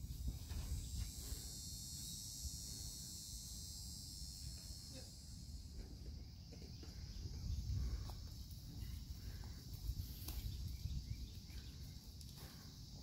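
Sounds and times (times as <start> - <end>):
wind rumble on microphone: 0.0 - 1.4, 6.7 - 12.1
high-pitched insect drone: 0.0 - 13.0.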